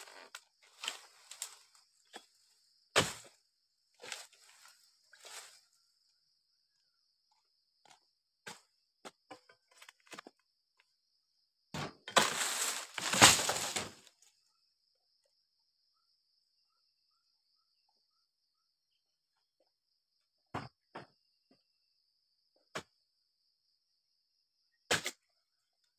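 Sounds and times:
frond thudding on ground: 12.1 - 14.0
palm frond crashing through leaves: 12.2 - 14.0.

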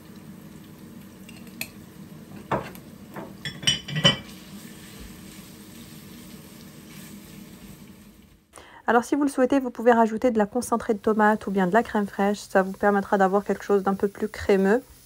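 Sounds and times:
faint sizzle of meat: 0.0 - 15.0.

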